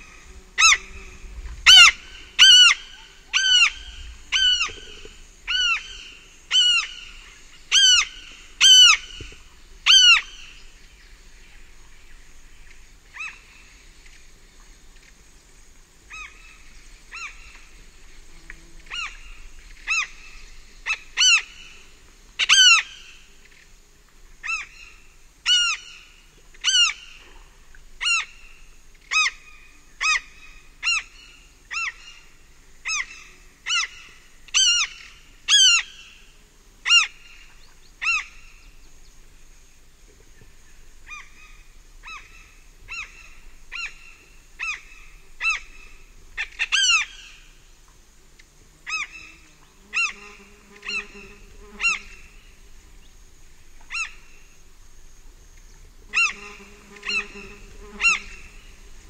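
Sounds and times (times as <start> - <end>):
tern harsh flight calls: 0.0 - 10.6, 18.8 - 23.2, 24.4 - 27.3, 28.0 - 32.2, 32.8 - 38.7, 41.0 - 47.5, 48.8 - 52.7, 53.8 - 54.6, 56.1 - 59.0
faint distant birds: 0.0 - 59.0
insects: 0.0 - 59.0.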